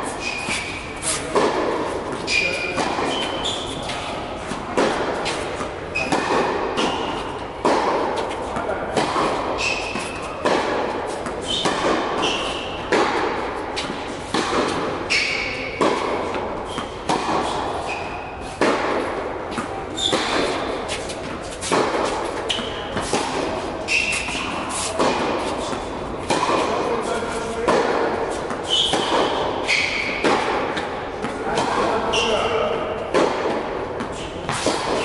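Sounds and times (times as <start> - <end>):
shoes squeaking on court: 0.0 - 7.6, 9.3 - 10.5, 11.1 - 13.0, 13.8 - 18.6, 19.5 - 25.9, 28.3 - 32.8
rackets hitting tennis ball: 0.0 - 35.0
ball bouncing on court: 1.3 - 18.0, 18.6 - 27.0, 27.6 - 35.0.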